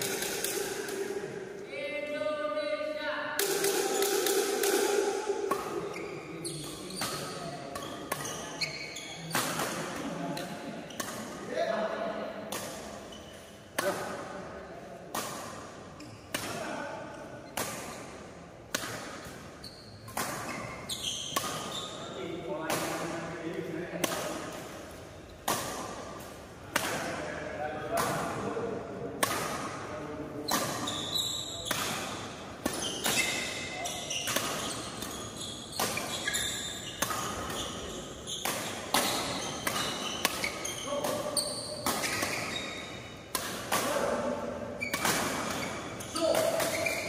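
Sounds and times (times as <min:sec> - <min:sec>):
rackets hitting shuttlecock: 0:00.0 - 0:01.4, 0:03.4 - 0:11.6, 0:12.4 - 0:14.3, 0:15.1 - 0:47.0
shoes squeaking on court: 0:05.7 - 0:11.4, 0:13.0 - 0:13.7, 0:16.0 - 0:16.4, 0:19.2 - 0:22.3, 0:30.4 - 0:43.3, 0:43.9 - 0:47.0.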